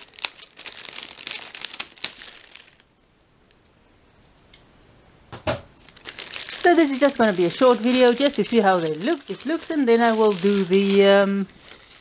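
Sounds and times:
plastic bag tearing and rustling: 0.0 - 2.8, 5.8 - 12.0.

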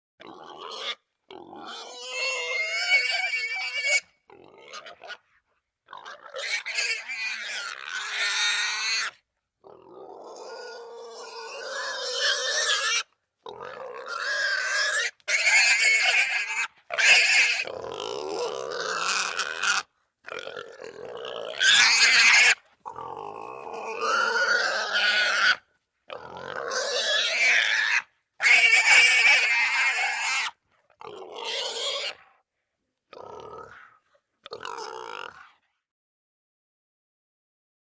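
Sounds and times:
wild boar squealing: 0.2 - 32.4, 33.1 - 35.6.

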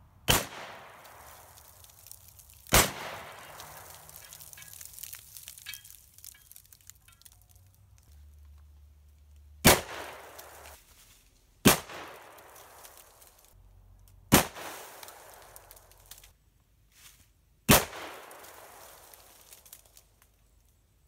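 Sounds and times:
shotgun shots: 0.3 - 1.0, 2.7 - 3.9.

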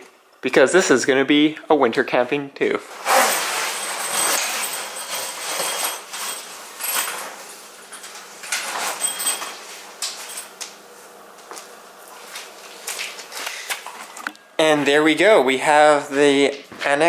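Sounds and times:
tent fabric rustling: 2.9 - 6.4.

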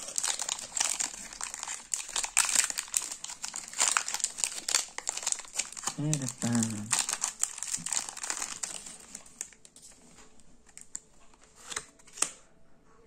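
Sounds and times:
foil pack crinkling: 0.0 - 10.0.

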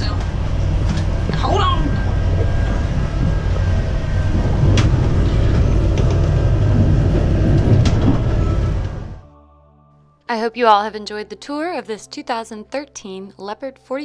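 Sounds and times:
boat low rumble in rough seas: 0.0 - 9.3.

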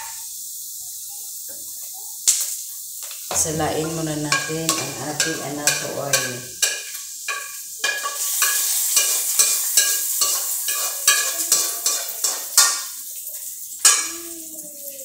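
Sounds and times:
hot oil sizzling: 0.0 - 15.0
utensil scraping metal frying pan: 3.3 - 13.0.

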